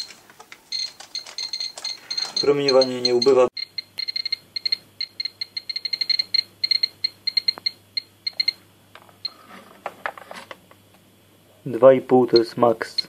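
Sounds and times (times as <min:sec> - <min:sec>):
radiation meter beeps: 0:00.0 - 0:08.6, 0:12.3 - 0:13.0.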